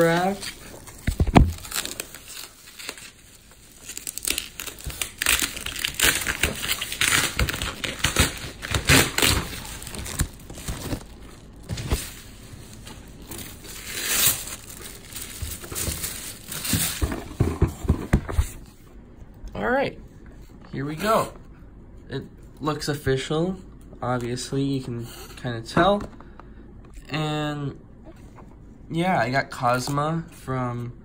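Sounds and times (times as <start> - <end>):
bubble wrap crinkling: 0.0 - 17.4.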